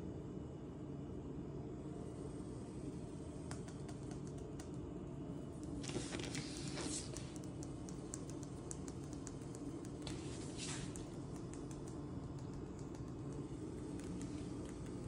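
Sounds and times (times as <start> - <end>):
low room hum: 0.0 - 15.0
kitten claws ticking on floor: 3.5 - 4.8, 5.6 - 15.0.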